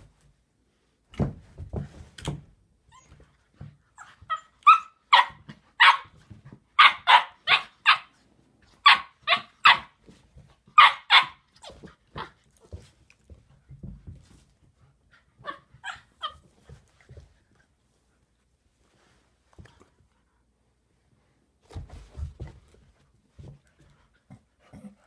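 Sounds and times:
low thumps and scuffles: 1.1s - 2.6s, 21.6s - 24.1s
dog barking: 4.7s - 6.1s, 6.8s - 8.1s, 10.8s - 11.4s.

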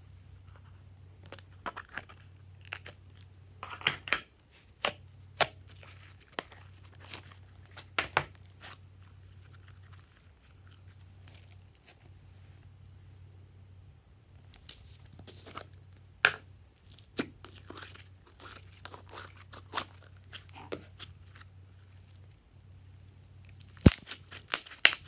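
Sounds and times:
sticky slime crackling: 4.5s - 12.0s, 16.8s - 22.3s, 23.4s - 25.0s.

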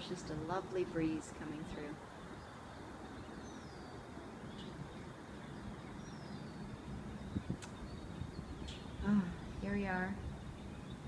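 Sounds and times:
breeze: 0.0s - 11.0s
distant traffic: 0.0s - 11.0s
faint bird chirps: 1.8s - 11.0s
sharp clicks: 7.6s - 7.8s.

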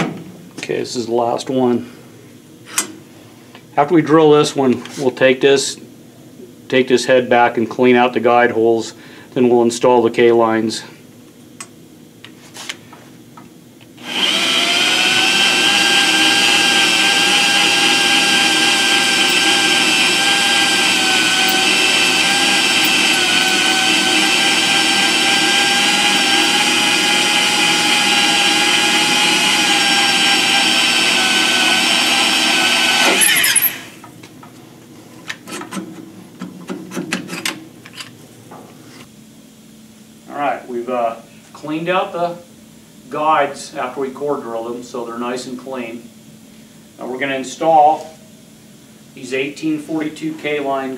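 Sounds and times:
electric drill drilling metal: 14.0s - 34.0s.

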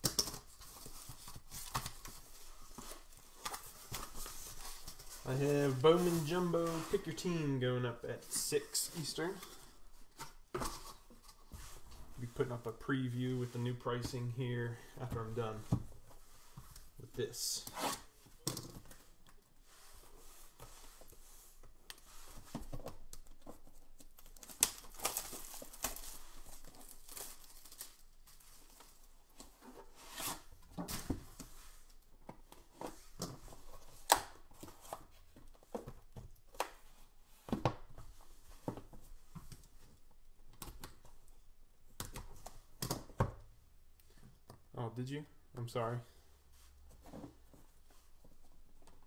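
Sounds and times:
plastic wrap tearing and crinkling: 23.9s - 29.1s.

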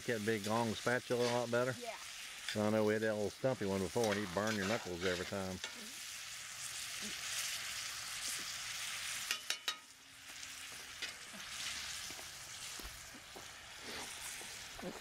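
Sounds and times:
food sizzling in skillet: 0.0s - 15.0s.

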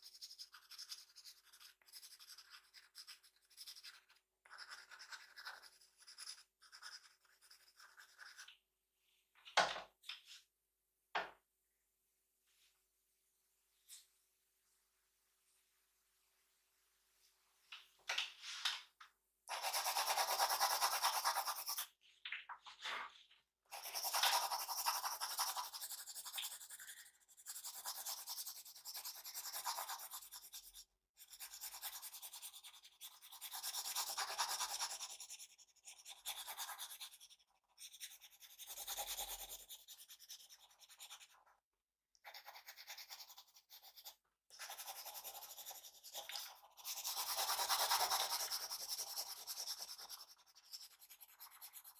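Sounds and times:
pencil scrubbing on paper: 0.0s - 8.5s, 19.5s - 22.0s, 23.7s - 41.5s, 42.2s - 51.9s.

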